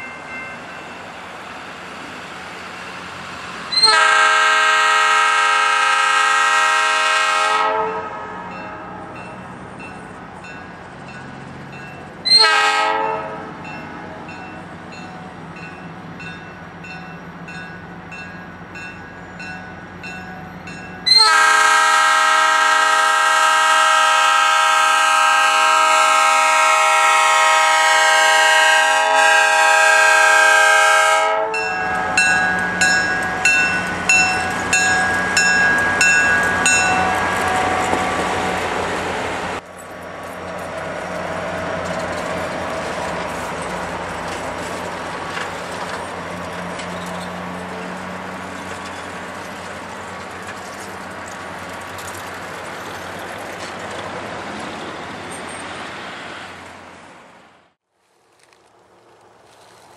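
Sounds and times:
locomotive air horn: 0:03.7 - 0:09.0, 0:12.3 - 0:13.5, 0:21.1 - 0:32.2
bell dinging: 0:31.6 - 0:37.2.

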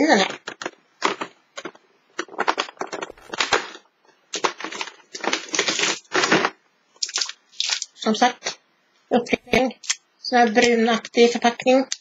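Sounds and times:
cardboard and foil crinkling: 0:00.5 - 0:07.9.

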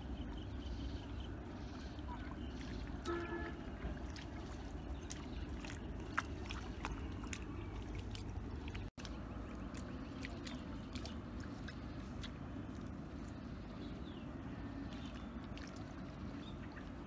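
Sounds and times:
low outdoor rumble: 0:00.0 - 0:17.0
hands squelching in muddy water: 0:00.5 - 0:17.0.

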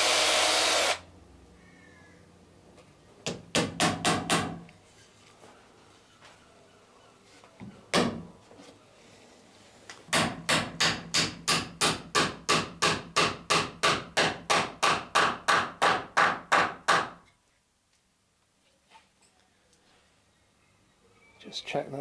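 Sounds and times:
hammer driving nail into wood: 0:03.3 - 0:04.6, 0:10.1 - 0:17.2.

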